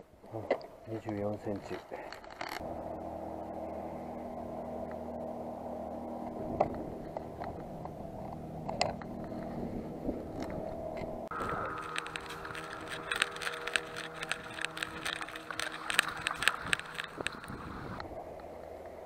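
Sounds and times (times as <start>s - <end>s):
engine running: 1.6s - 19.0s
metal lure clicks: 11.6s - 17.6s.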